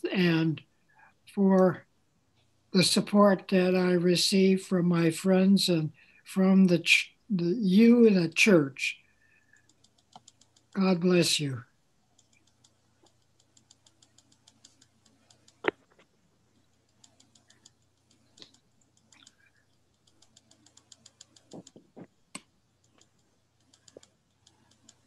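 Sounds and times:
typing on computer keyboard: 9.5s - 10.8s, 12.2s - 22.1s, 22.8s - 25.0s.

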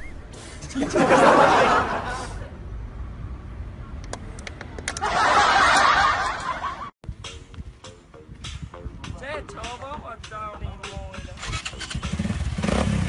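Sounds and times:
laughter: 0.6s - 2.5s, 4.9s - 6.9s.

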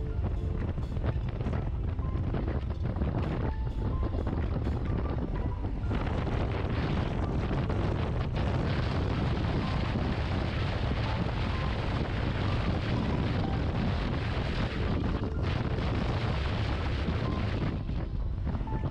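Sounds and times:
wind rumble on microphone: 0.0s - 18.9s.

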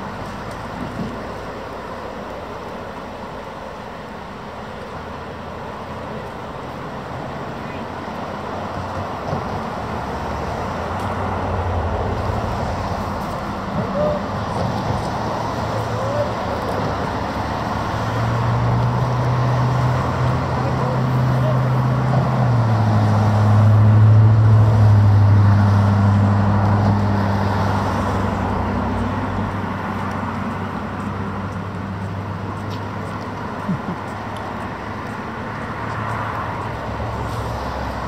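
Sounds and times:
tyre and road noise: 0.0s - 38.0s.

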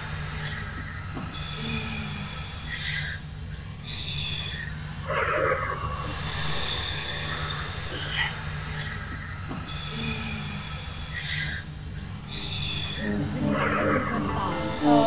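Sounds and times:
steady low hum: 11.6s - 15.0s
bright high tone: 12.4s - 15.0s.

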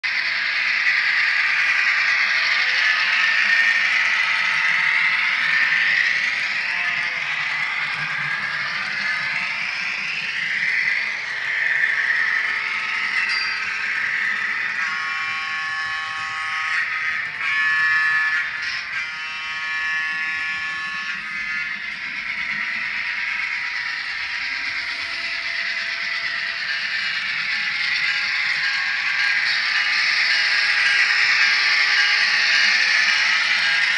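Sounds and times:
horn blasts: 14.7s - 21.7s.

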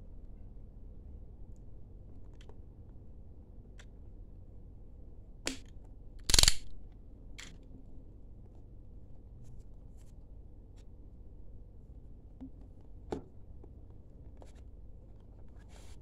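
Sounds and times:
utility knife slitting sticker: 6.2s - 6.7s.

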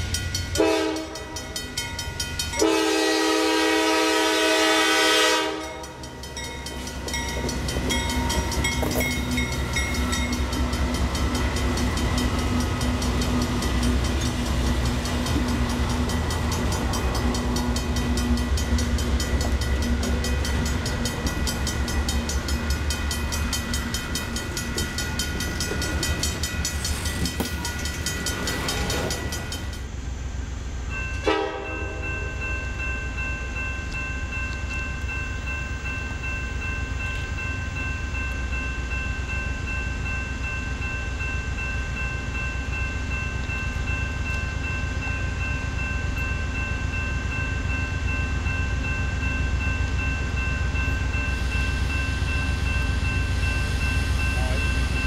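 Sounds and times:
train rumbling past: 0.0s - 55.0s
locomotive air horn: 0.6s - 1.4s, 2.6s - 5.8s, 31.2s - 32.0s.

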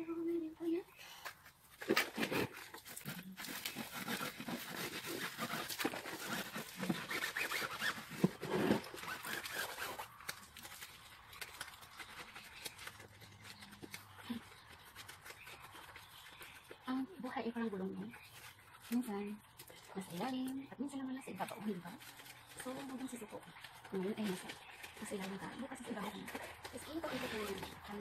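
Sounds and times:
scrubbing wet rubber tyre: 3.6s - 13.0s.

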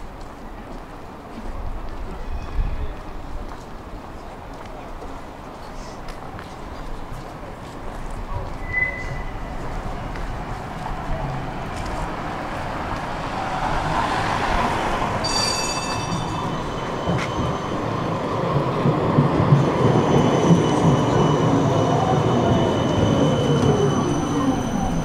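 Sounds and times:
tram wheels rumbling on rails: 0.0s - 25.0s
high ringing tone: 15.2s - 17.7s.

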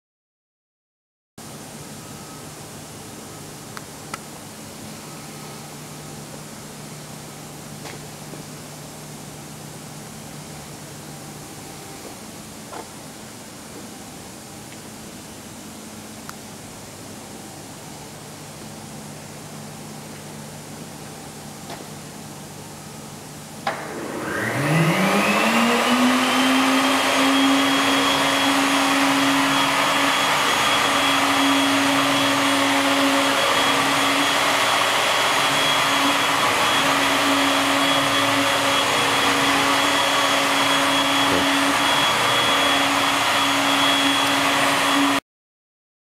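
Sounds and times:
router motor whining: 23.7s - 45.2s.

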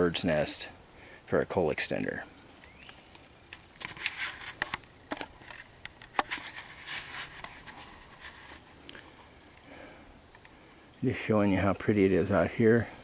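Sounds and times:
camcorder handling rustles: 2.7s - 8.7s.

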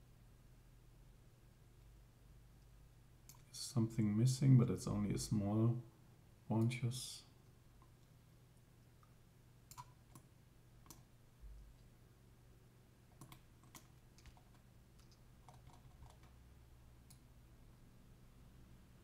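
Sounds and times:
low steady hum: 0.0s - 19.0s
computer mouse clicks: 3.3s - 3.5s, 9.0s - 11.1s, 13.1s - 16.4s.

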